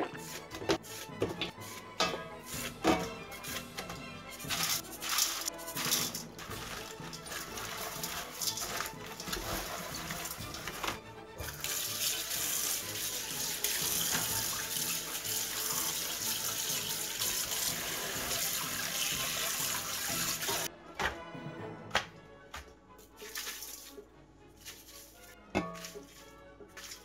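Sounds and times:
background music: 0.0 - 27.0
tap water running into sink: 4.4 - 20.7, 23.2 - 24.0.

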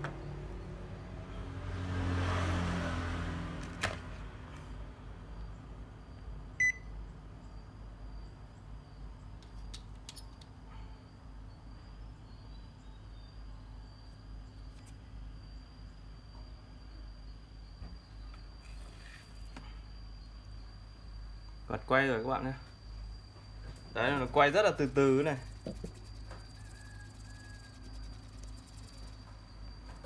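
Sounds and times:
short electronic beep: 6.6 - 6.9.

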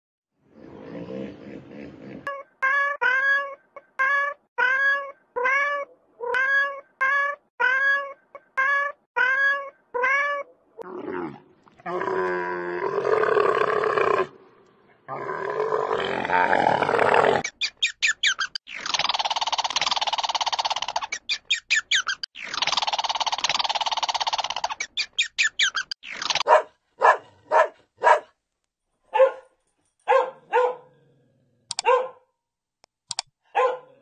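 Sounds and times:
squirrel clicking chatter: 17.4 - 26.5.

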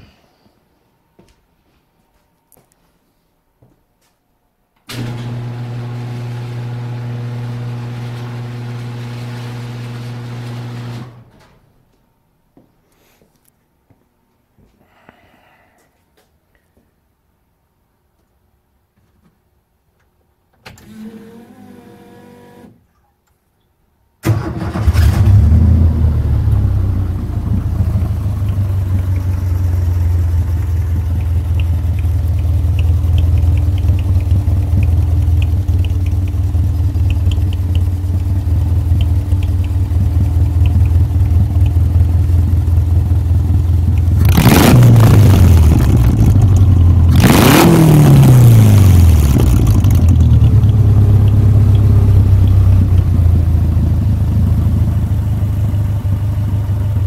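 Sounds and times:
faint starter whine: 4.8 - 11.9, 24.2 - 47.3, 48.6 - 53.8
car engine starting and idling: 4.9 - 11.4, 24.2 - 57.0
engine revving: 24.3 - 54.3.

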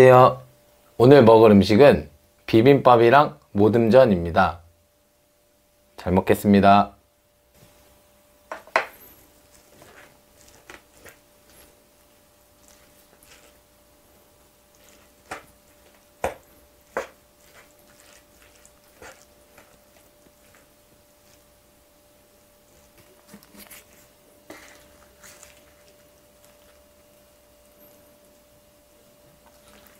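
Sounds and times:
soft stirring of rice: 7.4 - 29.9
spoon knocking and scraping plate: 8.5 - 9.0.

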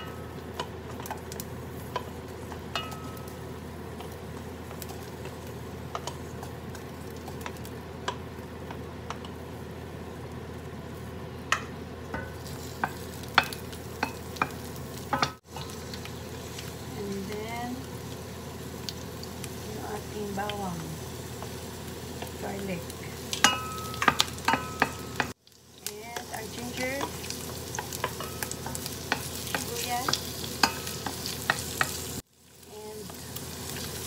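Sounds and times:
onions sizzling in hot oil: 0.0 - 34.0
wooden spoon tapping and scraping pot: 26.1 - 32.0.

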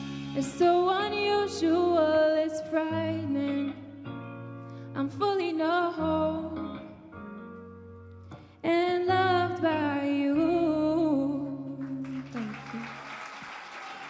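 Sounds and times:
instrumental backing track chords: 0.0 - 11.8
applause hiss: 12.1 - 14.0.

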